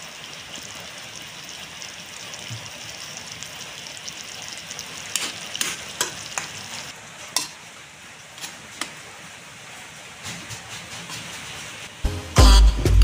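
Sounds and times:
food sizzling in a wok: 0:00.0 - 0:10.2.

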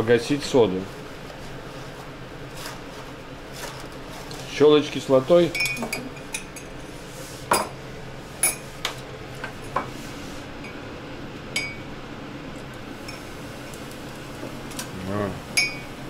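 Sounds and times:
dishes and utensils clinking: 0:05.5 - 0:06.8, 0:15.6 - 0:15.9.

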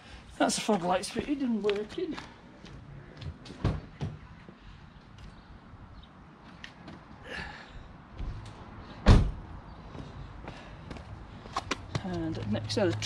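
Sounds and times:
car door slamming: 0:09.0 - 0:09.4.

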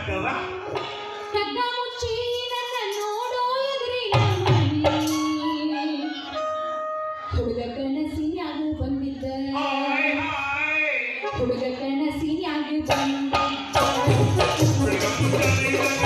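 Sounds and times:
musical accompaniment: 0:00.0 - 0:07.9, 0:12.8 - 0:16.0
person singing into microphone: 0:07.3 - 0:16.0.

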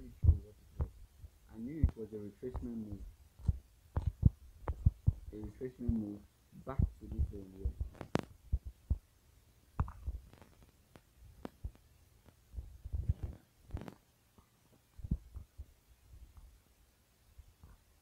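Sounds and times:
steady low hum: 0:00.0 - 0:14.0, 0:14.8 - 0:16.8
fingers tapping on touchscreen: 0:03.4 - 0:06.0, 0:09.8 - 0:15.6.

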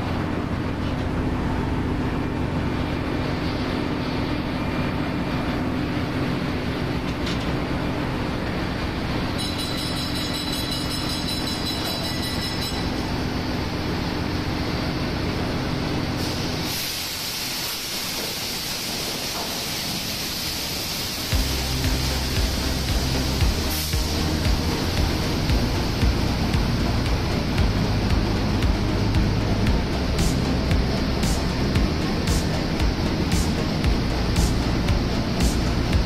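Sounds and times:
engine room machinery din: 0:00.0 - 0:17.3, 0:17.9 - 0:36.0
bright hiss: 0:16.2 - 0:36.0
constant low hum: 0:21.3 - 0:36.0.

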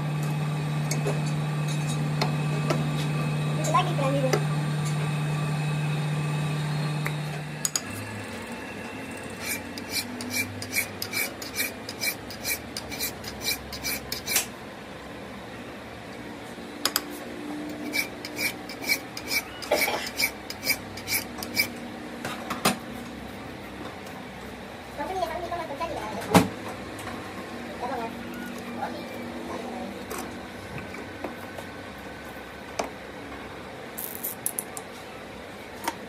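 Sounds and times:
metal on metal scraping strokes: 0:07.9 - 0:14.5, 0:17.7 - 0:21.8.

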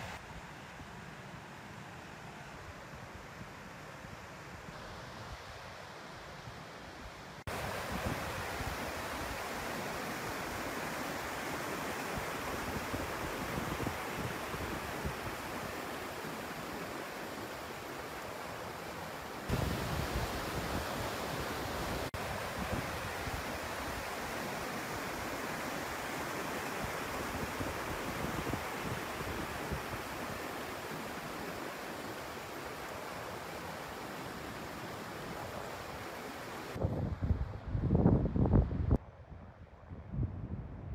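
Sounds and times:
waterfall rushing over boulders: 0:07.3 - 0:36.8
wind buffeting microphone: 0:36.8 - 0:40.9.

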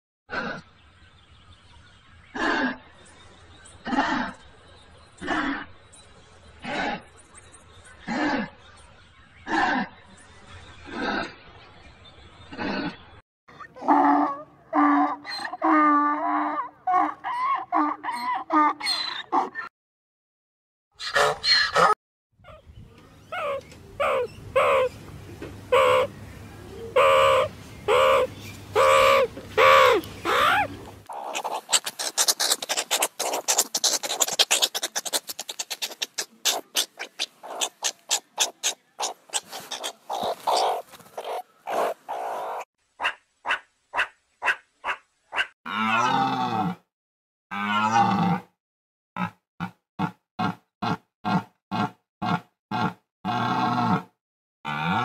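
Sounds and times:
meerkats chattering: 0:23.2 - 0:24.9, 0:25.7 - 0:26.1, 0:26.9 - 0:45.5
meerkats calling: 0:23.2 - 0:25.0, 0:25.7 - 0:26.1, 0:26.9 - 0:45.5.

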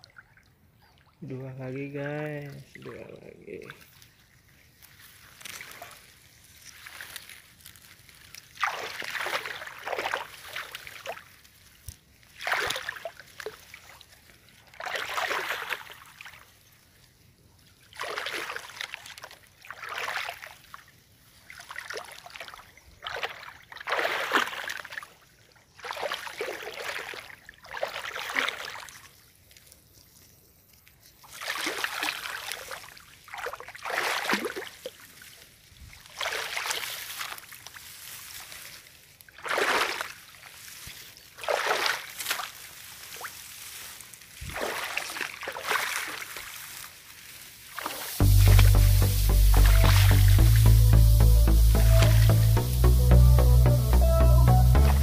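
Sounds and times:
footsteps splashing in shallow water: 0:02.2 - 0:51.1, 0:51.7 - 0:52.7
swish of grass stems: 0:03.8 - 0:13.7, 0:36.1 - 0:54.0.

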